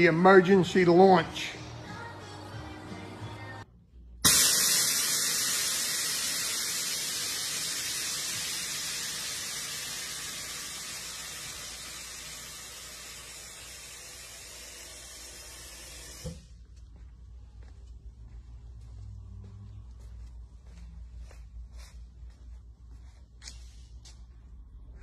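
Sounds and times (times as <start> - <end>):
air suspension hissing: 4.2 - 16.5.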